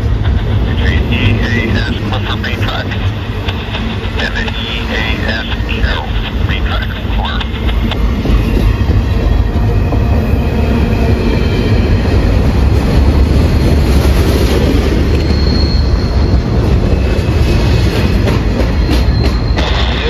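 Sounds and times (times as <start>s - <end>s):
freight train wheels rumbling: 0.0s - 20.0s
high wheel squeals: 14.4s - 20.0s.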